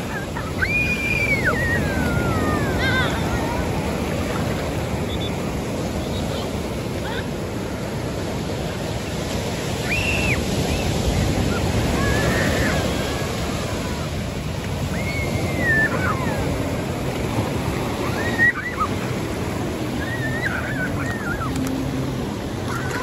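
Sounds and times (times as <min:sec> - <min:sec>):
ocean surf breaking: 0:00.0 - 0:23.0.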